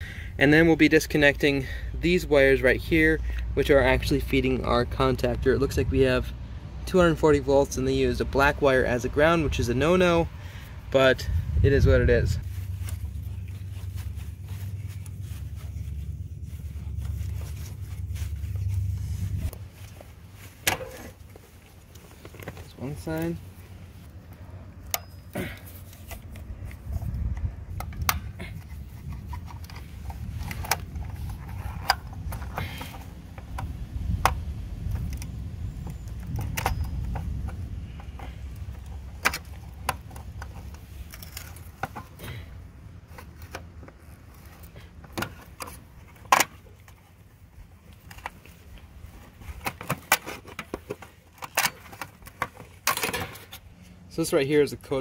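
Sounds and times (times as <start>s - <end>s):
low rumble: 10.7s - 19.8s.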